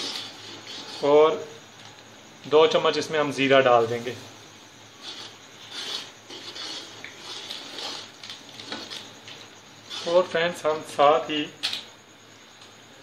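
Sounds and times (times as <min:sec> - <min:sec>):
metal spoon scraping cooking pot: 0:05.0 - 0:09.1.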